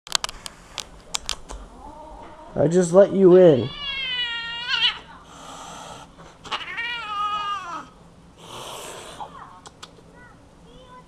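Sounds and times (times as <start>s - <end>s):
cat yowling aggressively: 3.6s - 5.1s, 6.4s - 8.0s
cat hissing: 3.6s - 9.4s.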